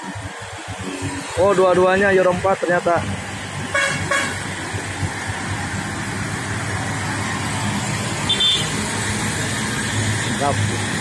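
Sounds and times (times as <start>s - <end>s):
diesel truck engine running: 0.0s - 11.0s
horn toots: 3.7s - 4.4s, 8.2s - 8.8s.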